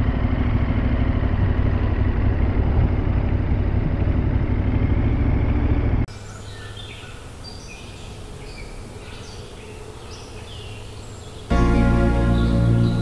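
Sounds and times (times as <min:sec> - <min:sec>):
motorcycle engine running: 0:00.0 - 0:06.1
birds chirping and trilling: 0:05.1 - 0:13.0
music: 0:11.5 - 0:13.0.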